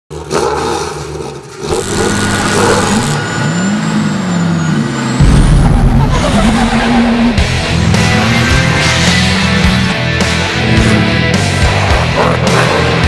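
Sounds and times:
car engine revving: 0.1s - 13.0s
heavy deep boom: 5.2s - 8.0s.

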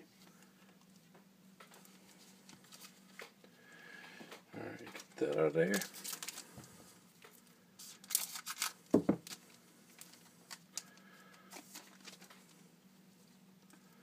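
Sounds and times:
foil wrapper crinkling: 4.8s - 6.6s, 7.2s - 12.6s.

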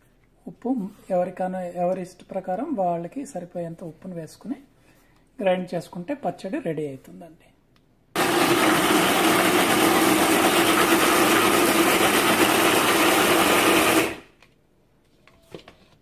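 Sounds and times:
mixer grinder grinding food: 8.2s - 14.4s.

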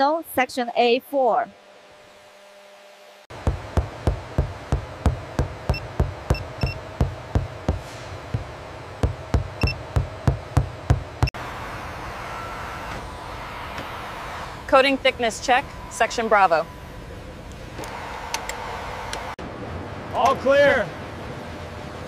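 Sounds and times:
steady hum: 0.3s - 22.0s
steady tone: 3.3s - 11.4s
probe tapping on panel: 3.4s - 11.3s
short electronic beeps: 5.7s - 6.8s, 9.6s - 9.8s.

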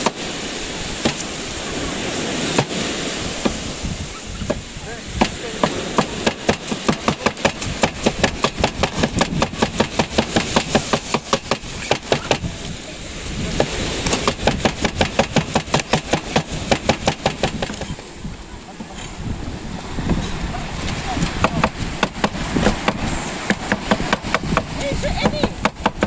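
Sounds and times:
cleaver chopping on wooden board: 1.0s - 1.3s, 3.4s - 3.6s, 5.2s - 12.4s, 13.6s - 17.9s, 21.2s - 26.0s.

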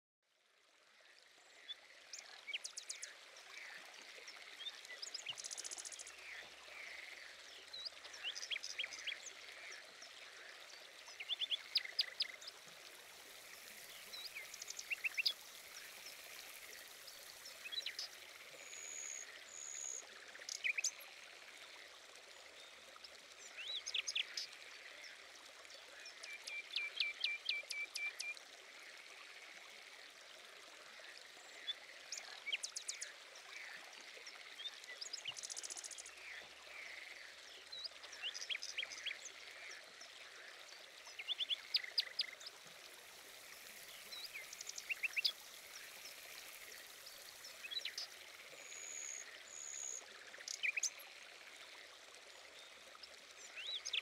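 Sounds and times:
flowing water: 0.2s - 54.0s
small birds chirping: 2.1s - 21.1s, 41.0s - 51.1s.

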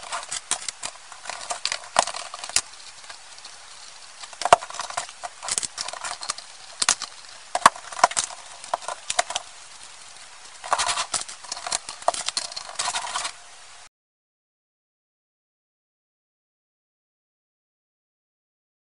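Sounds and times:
plastic bricks clicking and clattering: 0.0s - 13.4s.

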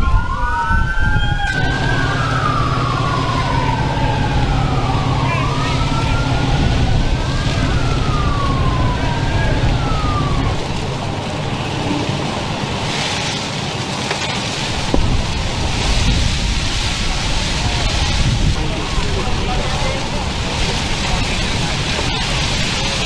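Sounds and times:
emergency sirens wailing: 0.0s - 23.0s
steady low rumble: 0.0s - 23.0s
rushing hiss: 10.8s - 23.0s.

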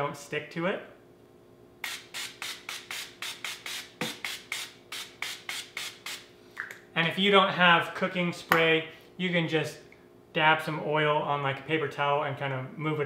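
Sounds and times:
aerosol spray can puffs: 1.8s - 6.7s.

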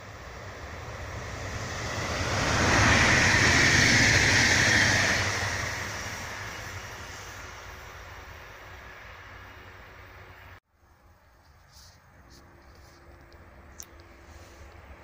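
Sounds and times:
train wheels rolling on rails: 0.0s - 10.5s.

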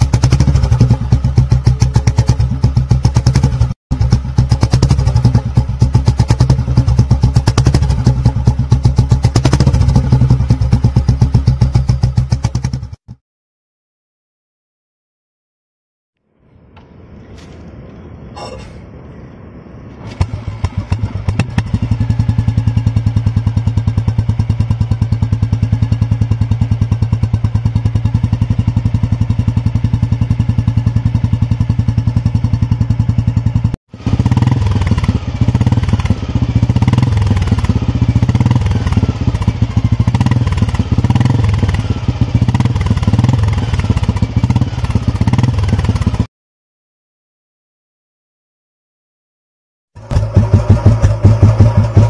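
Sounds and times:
motorcycle engine exhaust thumping: 0.0s - 13.2s, 20.1s - 46.3s, 50.0s - 52.0s.

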